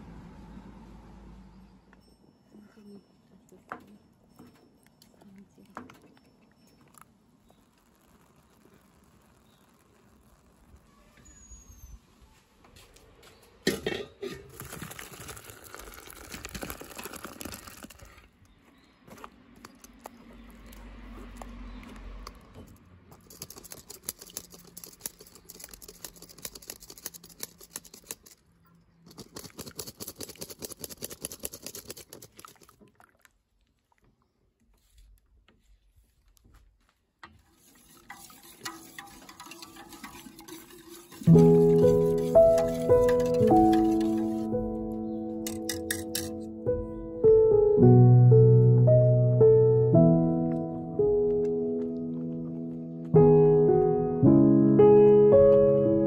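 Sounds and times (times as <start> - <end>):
pot of mash bubbling: 6.9 - 11.7, 13.7 - 18.3, 37.3 - 44.6
wooden spoon stirring: 14.5 - 18.3, 23.2 - 28.4, 29.1 - 32.8, 37.2 - 44.6, 45.5 - 46.4
mash dripping through sieve: 37.4 - 44.8.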